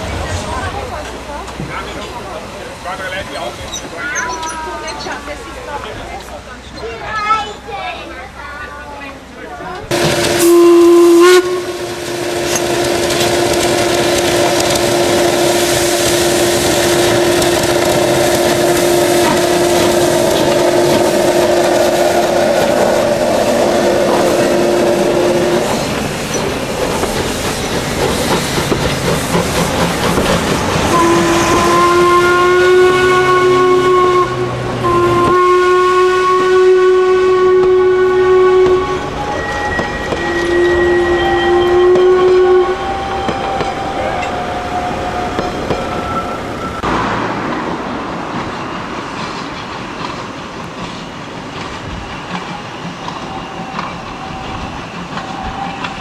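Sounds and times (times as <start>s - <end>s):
steam whistle blasts: 9.9s - 26.1s, 30.9s - 46.8s
steam locomotive exhaust chuffing: 9.9s - 56.0s.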